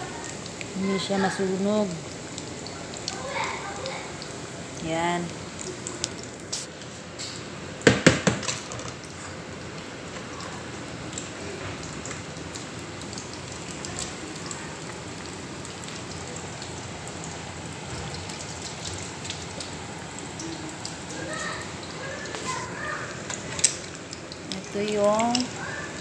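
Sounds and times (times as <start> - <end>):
fries sizzling in hot oil: 0.0 - 26.0.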